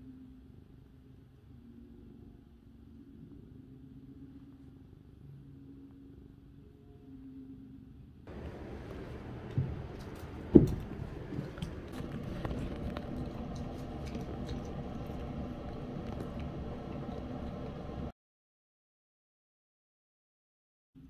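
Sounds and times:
steady background hum: 0.0s - 18.1s
cat chewing and lapping: 8.3s - 18.1s.

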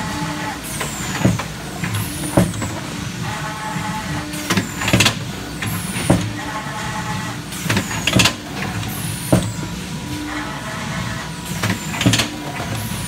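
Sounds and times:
steady machine hum: 0.0s - 13.0s
machine clunk: 0.8s - 2.9s, 7.6s - 9.7s
pneumatic exhaust hiss: 7.5s - 10.3s.

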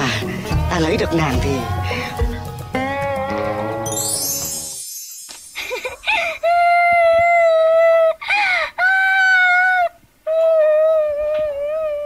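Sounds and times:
woman wailing: 6.0s - 12.0s.

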